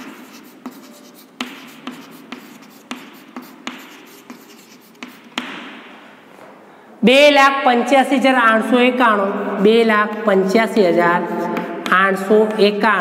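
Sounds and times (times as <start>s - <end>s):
chalk scratching on blackboard: 0.0s - 5.6s, 10.8s - 12.4s
chalk tapping on board: 0.0s - 5.8s, 10.8s - 12.7s.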